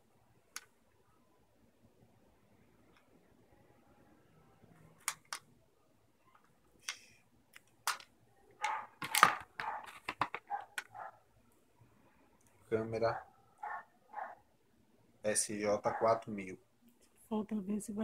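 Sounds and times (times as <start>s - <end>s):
plastic case clicks and snaps: 6.9s - 10.9s.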